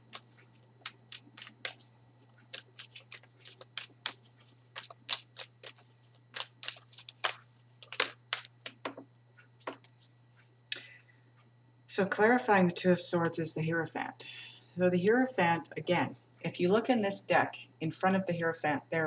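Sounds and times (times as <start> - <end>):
cards shuffled by hand: 0.0 - 10.6.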